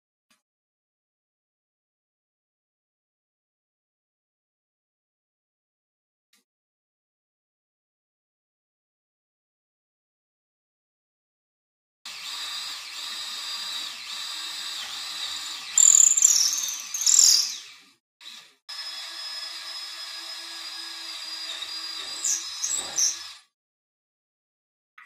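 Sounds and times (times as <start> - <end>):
cordless drill drilling into wood: 12.1 - 23.5.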